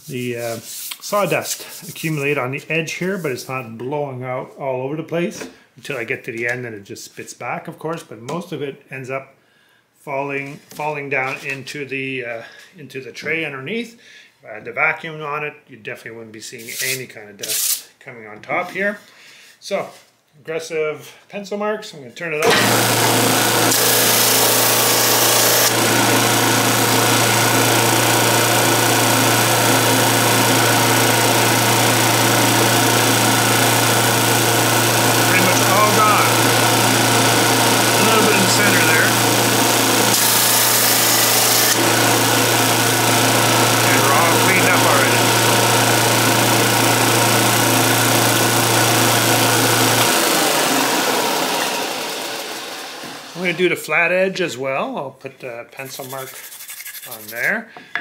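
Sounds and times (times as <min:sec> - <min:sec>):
wood sanding hiss: 0:00.0 - 0:02.0, 0:23.0 - 0:51.2, 0:55.8 - 0:57.6
drum sander humming: 0:22.4 - 0:53.6.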